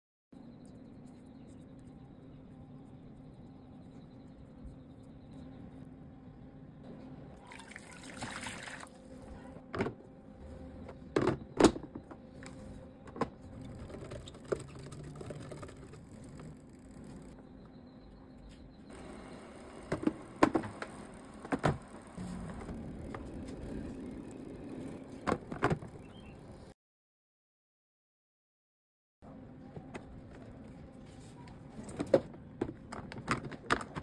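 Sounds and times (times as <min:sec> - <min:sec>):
liquid splash: 0:07.4 - 0:09.0.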